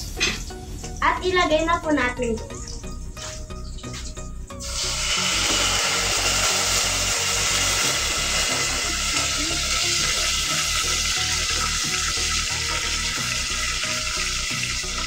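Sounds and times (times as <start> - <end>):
fish sizzling in hot oil: 3.4 - 15.0.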